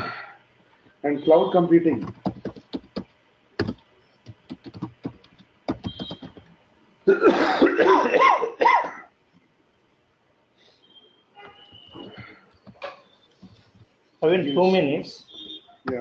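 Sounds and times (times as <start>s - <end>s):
keyboard typing: 1.9s - 6.6s, 11.7s - 13.9s.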